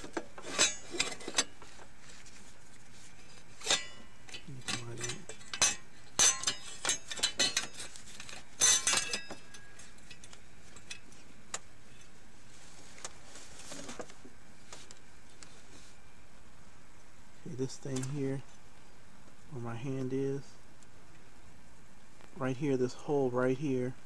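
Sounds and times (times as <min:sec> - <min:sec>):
metal clinking and knocking: 0:03.6 - 0:11.0.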